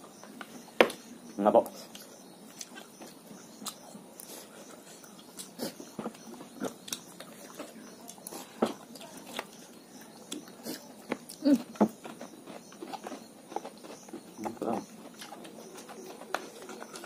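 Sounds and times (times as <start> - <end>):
chewing and lip smacks: 1.7 - 11.4, 15.0 - 17.0.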